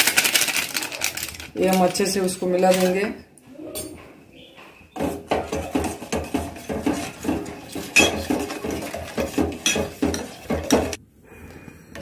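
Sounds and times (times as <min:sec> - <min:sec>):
metal spoon stirring in saucepan: 0:00.0 - 0:03.1, 0:04.9 - 0:11.0.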